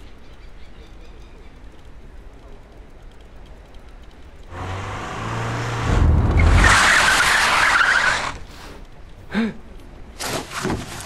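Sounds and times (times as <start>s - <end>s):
car engine running hard: 4.5s - 8.4s
tyres skidding and squealing: 4.5s - 8.6s.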